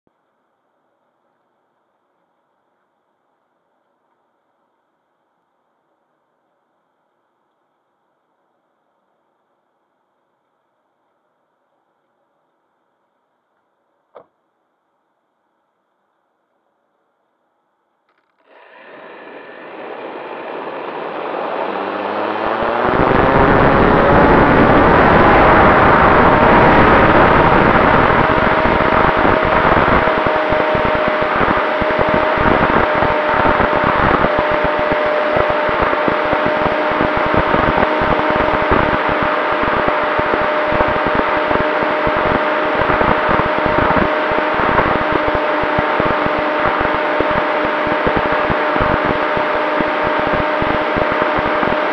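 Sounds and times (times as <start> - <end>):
electric motor and propeller whine: 18.1 - 51.9
rushing airflow: 18.5 - 51.9
wind buffeting microphone: 19.0 - 51.9.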